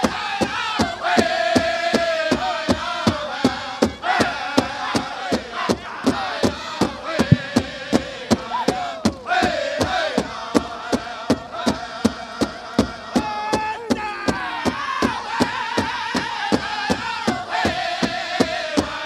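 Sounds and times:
men singing high chant: 0:00.0 - 0:19.0
big drum fast even beat: 0:07.1 - 0:09.3.

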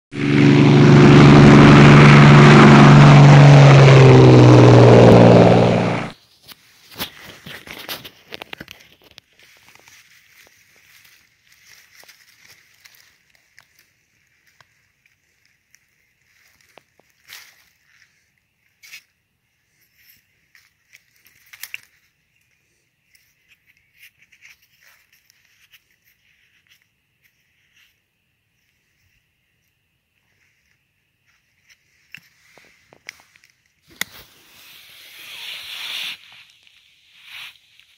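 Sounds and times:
low droning tones: 0:00.1 - 0:06.2
rushing noise: 0:00.1 - 0:06.2
soil and dead leaves crackling: 0:06.4 - 0:22.2.

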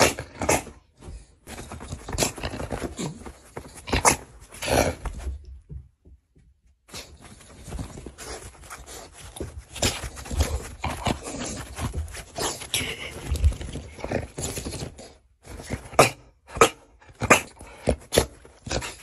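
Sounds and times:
dog gruffing and grumbling: 0:00.0 - 0:05.5, 0:07.0 - 0:19.0
paws thumping on a duvet: 0:00.0 - 0:06.1, 0:06.9 - 0:16.0.

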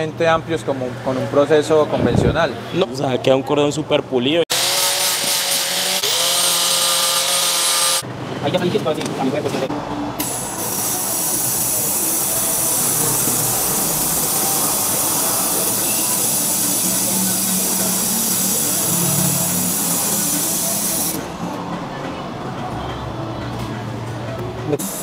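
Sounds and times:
laser welder hissing: 0:10.2 - 0:21.2.

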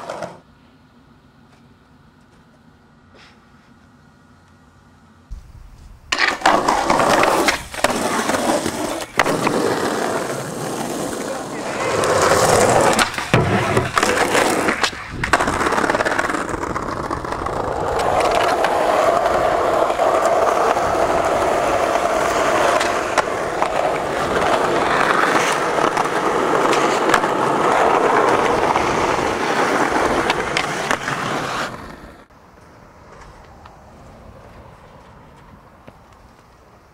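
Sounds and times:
skateboard wheels rolling on asphalt: 0:00.0 - 0:36.9
skateboard clacking on ground: 0:05.3 - 0:32.3.

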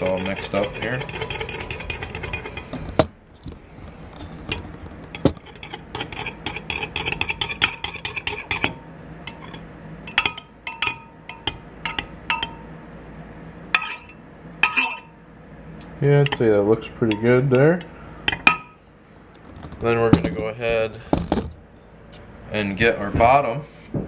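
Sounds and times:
metal stirrer tapping glass cup: 0:05.2 - 0:12.6
glass ringing: 0:07.0 - 0:12.7, 0:13.8 - 0:15.2, 0:18.3 - 0:18.8.

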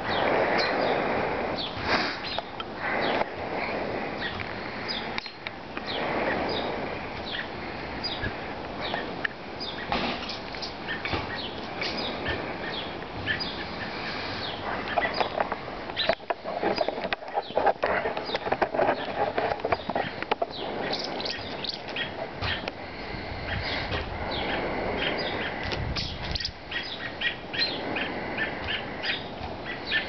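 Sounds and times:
birds chirping: 0:00.0 - 0:30.0
rustling: 0:13.3 - 0:23.1.

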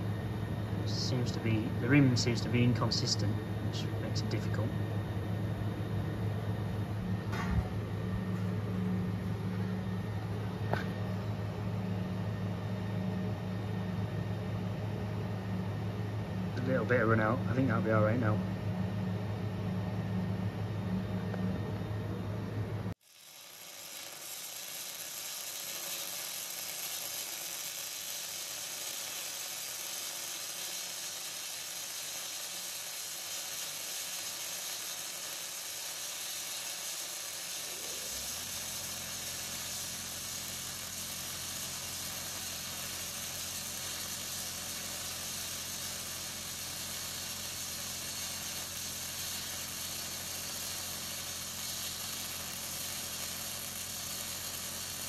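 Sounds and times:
machine humming: 0:00.0 - 0:55.0
arc welding hiss: 0:00.7 - 0:05.9, 0:06.8 - 0:11.3, 0:16.5 - 0:18.4, 0:22.9 - 0:55.0.

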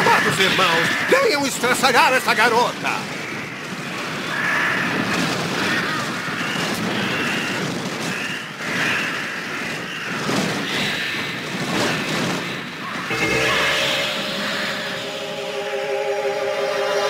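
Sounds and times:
crows cawing: 0:00.0 - 0:01.5, 0:03.0 - 0:13.0
rushing wings of crows: 0:00.0 - 0:13.1.

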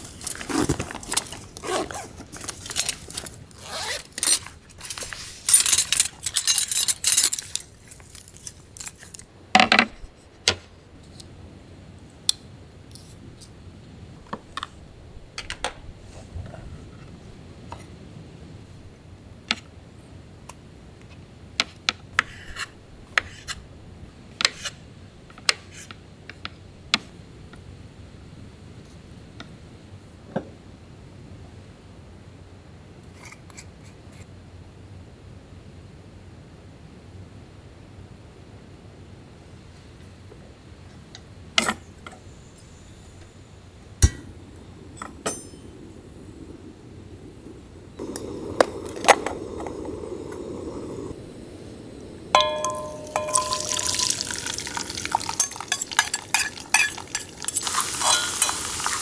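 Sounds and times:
gear bag rustling: 0:00.0 - 0:09.1
utensils clicking and tapping: 0:52.4 - 0:58.6.

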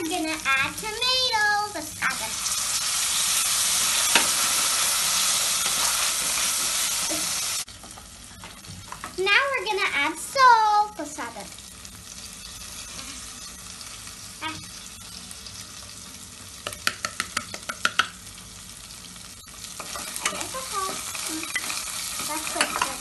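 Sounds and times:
vegetables sizzling in oil: 0:00.0 - 0:23.0
spatula scraping a pan: 0:19.8 - 0:23.0.

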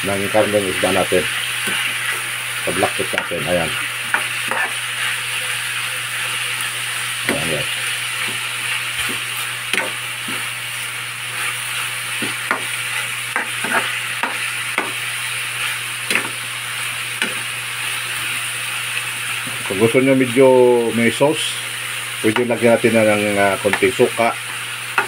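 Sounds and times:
food sizzling in frying pan: 0:00.0 - 0:25.0
metal spoon scraping pan: 0:04.1 - 0:04.8, 0:13.4 - 0:15.0.

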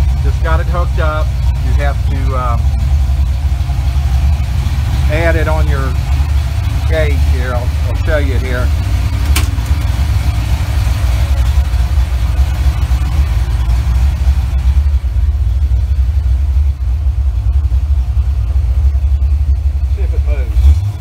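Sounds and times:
car engine idling: 0:00.0 - 0:21.0
sharp click: 0:09.2 - 0:09.8.

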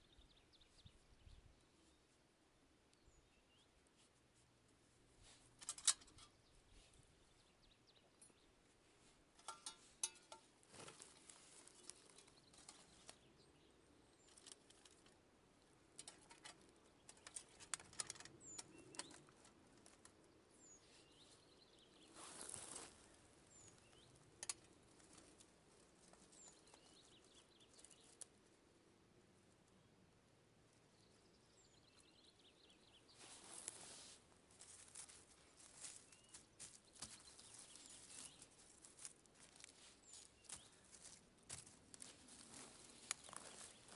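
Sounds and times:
bird chirping: 0:00.0 - 0:02.2, 0:02.9 - 0:03.8, 0:05.7 - 0:08.6, 0:15.6 - 0:19.5, 0:20.1 - 0:25.3, 0:26.1 - 0:28.3, 0:30.8 - 0:33.4, 0:35.9 - 0:38.8
rustle: 0:00.0 - 0:28.7, 0:30.6 - 0:43.9
faint metal clicks and clinks: 0:05.6 - 0:06.5, 0:09.4 - 0:10.5, 0:16.0 - 0:19.3, 0:24.0 - 0:25.5.

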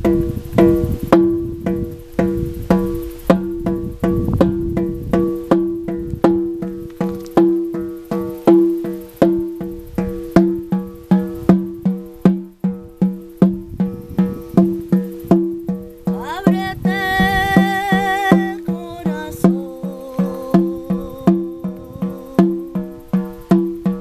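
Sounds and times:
frame drum beating: 0:00.0 - 0:24.0
person singing a wavering note: 0:16.1 - 0:23.2.

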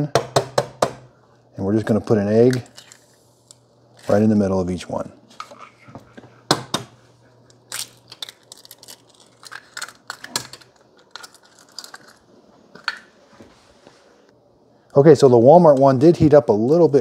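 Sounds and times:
faint steady hum: 0:00.0 - 0:17.0
egg cracking: 0:07.5 - 0:13.1.

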